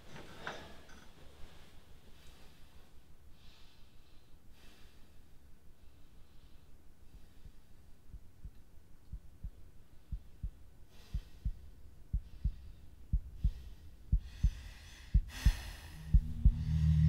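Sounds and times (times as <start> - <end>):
heartbeat thumps: 7.4 - 17.0
breath-like swells: 10.9 - 17.0
low steady drone: 11.1 - 17.0.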